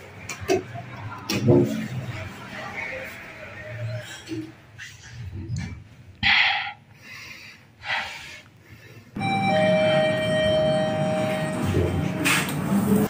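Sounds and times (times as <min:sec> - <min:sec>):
elevator hum and rumble: 0:09.2 - 0:13.0.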